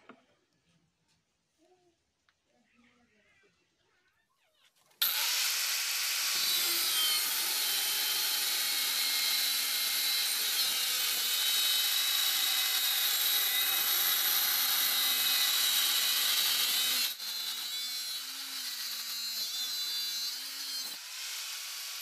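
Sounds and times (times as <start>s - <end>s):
angle grinder cutting metal: 5.0s - 22.0s.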